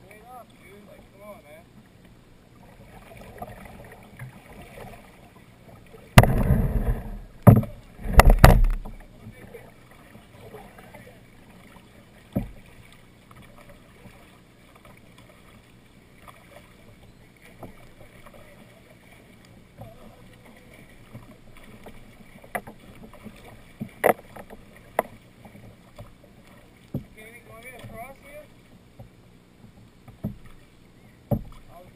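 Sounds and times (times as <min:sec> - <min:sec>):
paddle splashing in water: 0:00.0 - 0:31.9
sharp knocks: 0:06.2 - 0:09.0.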